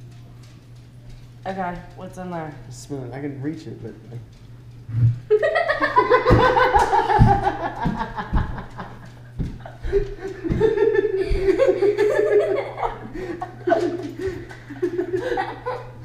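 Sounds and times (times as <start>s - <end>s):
woman and man laughing: 5.3s - 16.0s
low thumps: 6.1s - 11.8s.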